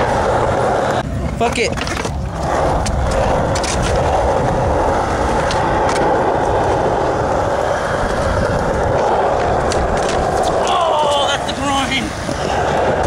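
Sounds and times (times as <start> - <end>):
skateboard wheels rolling on concrete: 0.0 - 13.0.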